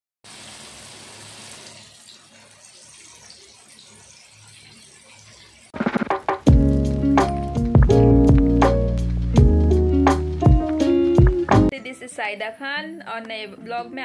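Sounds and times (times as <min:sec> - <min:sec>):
fish sizzling in hot oil: 0:00.2 - 0:02.1, 0:03.8 - 0:09.2
loud music with sharp strikes: 0:05.8 - 0:11.7.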